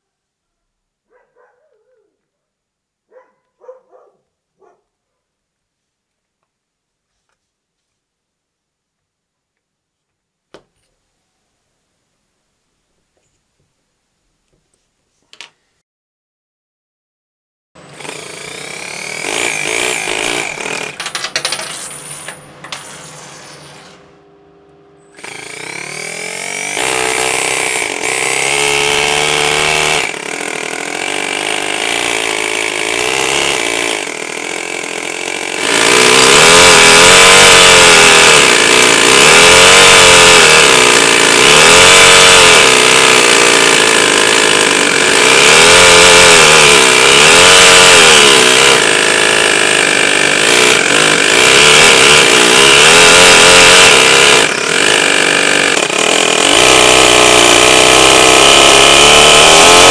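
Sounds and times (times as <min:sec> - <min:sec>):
model engine running and revving: 0:25.2 - 0:59.9.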